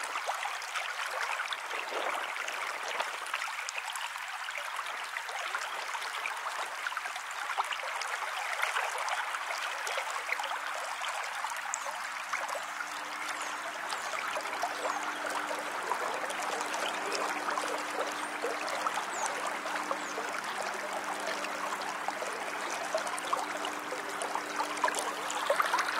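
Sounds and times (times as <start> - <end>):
river water running over stones: 0.0 - 25.9.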